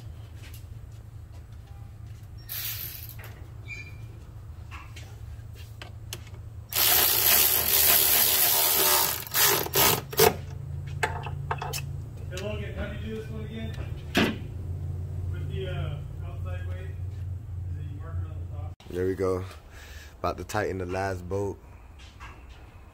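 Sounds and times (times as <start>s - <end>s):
electric ratchet running a bolt: 6.7s - 10.4s.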